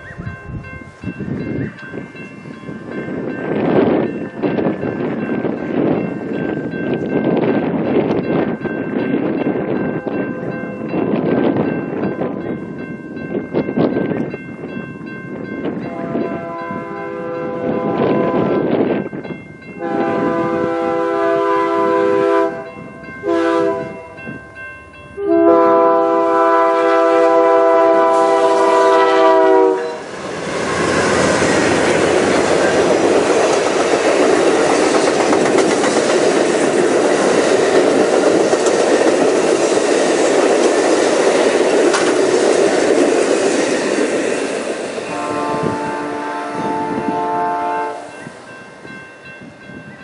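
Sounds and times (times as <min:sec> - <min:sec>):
locomotive air horn blasts: 0:15.8 - 0:18.7, 0:19.8 - 0:24.0, 0:25.2 - 0:30.1, 0:45.1 - 0:48.2
train cars clattering over rails: 0:29.9 - 0:45.3.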